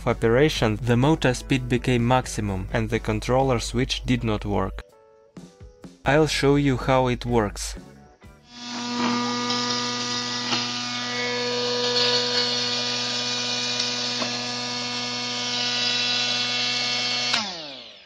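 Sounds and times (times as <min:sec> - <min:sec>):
electric motor whining: 0:08.5 - 0:18.0.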